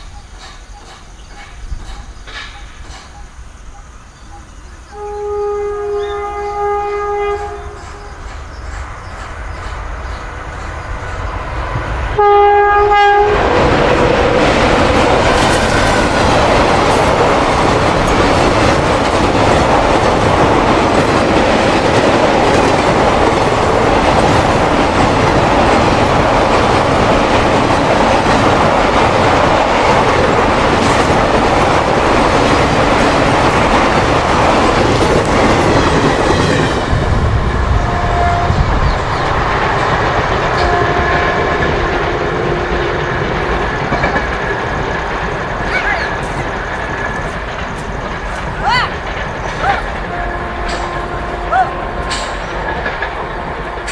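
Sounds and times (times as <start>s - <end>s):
train rumbling over a bridge: 0.0s - 53.9s
locomotive horn blast: 4.9s - 8.0s, 12.2s - 13.8s, 37.7s - 38.8s, 40.6s - 43.0s, 49.6s - 52.3s.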